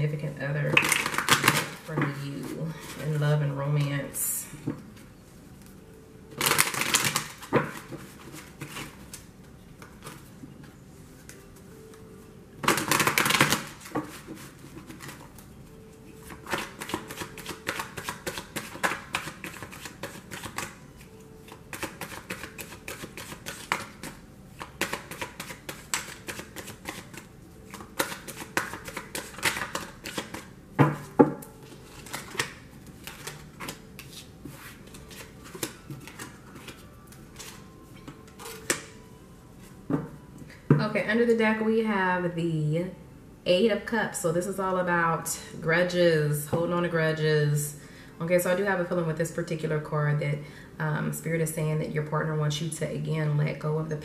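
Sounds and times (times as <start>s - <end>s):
cards riffle shuffling: 21.5s - 30.5s.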